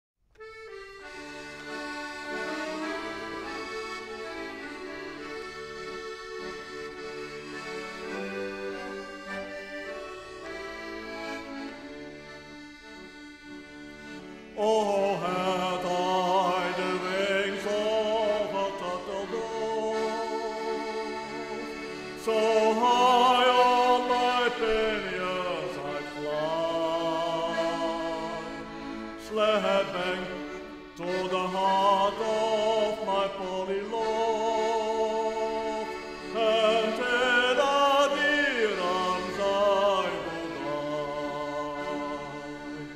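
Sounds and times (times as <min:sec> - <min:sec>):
accordion playing chords: 0:00.3 - 0:42.9
person singing: 0:14.5 - 0:42.9.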